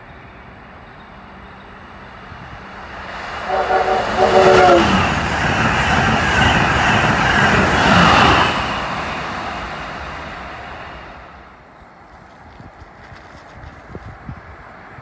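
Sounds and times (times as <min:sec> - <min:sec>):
train passing at speed: 0:00.0 - 0:15.0
train horn: 0:03.4 - 0:05.1.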